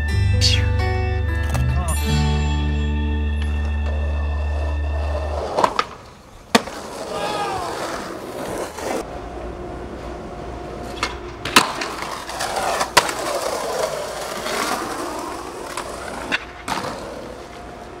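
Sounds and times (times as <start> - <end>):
skateboard wheels rolling on concrete: 2.8 - 18.0
skateboard clacks: 3.4 - 9.1, 10.7 - 18.0.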